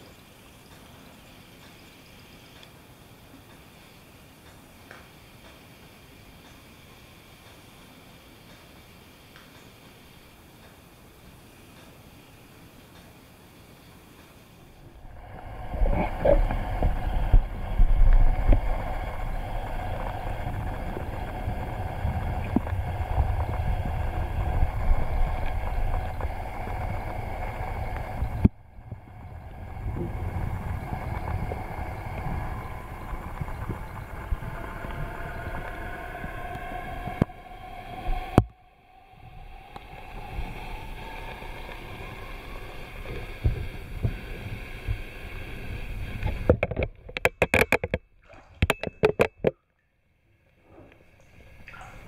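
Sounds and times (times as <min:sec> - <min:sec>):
motor hum: 0:14.7 - 0:46.5
churning water: 0:14.7 - 0:49.5, 0:50.6 - 0:52.0
knocks and splashes: 0:46.4 - 0:49.6, 0:51.6 - 0:52.0.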